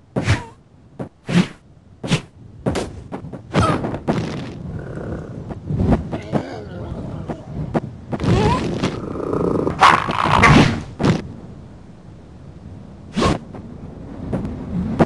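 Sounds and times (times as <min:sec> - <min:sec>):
cartoon thumps and knocks: 0:02.0 - 0:04.6.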